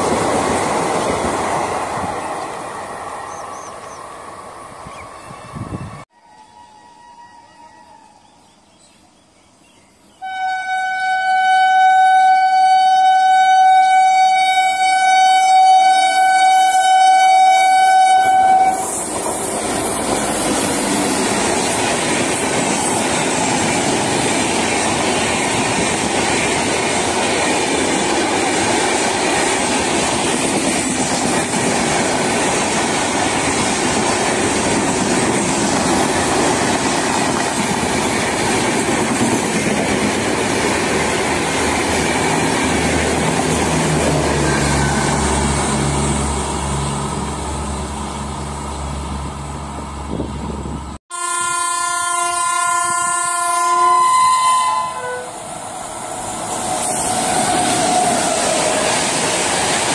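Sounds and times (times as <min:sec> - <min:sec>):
train horn blast: 0:10.2 - 0:19.1, 0:44.0 - 0:46.4, 0:51.1 - 0:55.5
train wheels clattering on rails: 0:18.8 - 0:44.9, 0:56.2 - 0:59.9.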